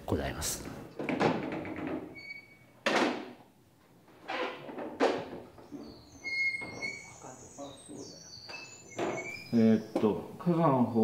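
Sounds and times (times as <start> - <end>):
wooden doors knocking: 1.0 - 2.2, 2.8 - 3.4, 4.4 - 7.1.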